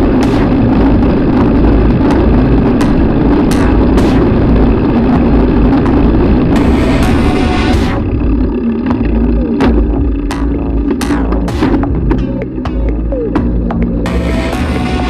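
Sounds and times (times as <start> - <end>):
road rumble: 0.0 - 15.0.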